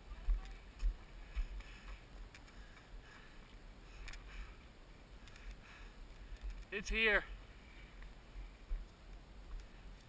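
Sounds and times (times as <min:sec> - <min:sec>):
muffled running footfalls: 0:00.0 - 0:03.4
faint breaths: 0:00.5 - 0:10.0.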